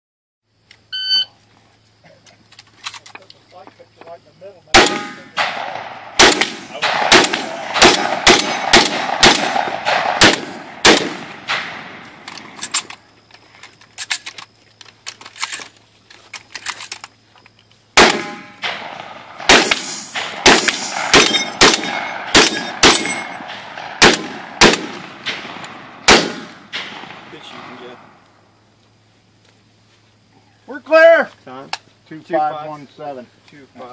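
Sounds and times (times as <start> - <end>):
shotgun shots: 4.7 - 12.8, 18.0 - 28.2.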